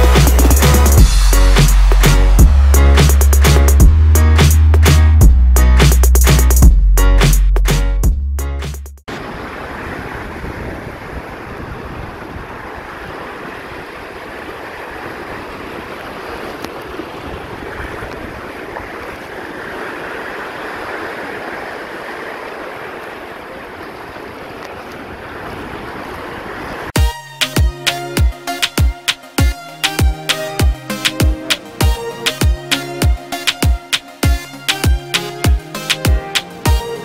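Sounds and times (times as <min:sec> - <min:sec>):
small surf washing up sand: 0:09.1 - 0:27.0
wind buffeting microphone: 0:09.3 - 0:21.7.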